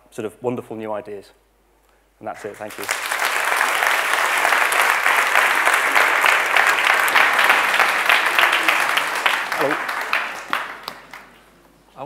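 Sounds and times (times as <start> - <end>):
audience applause: 2.4 - 11.5.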